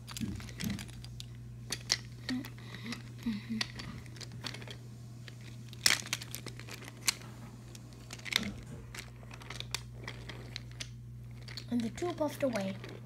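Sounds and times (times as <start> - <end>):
steady low hum: 0.0 - 13.0
toy trains clicking on wooden track: 8.1 - 13.0.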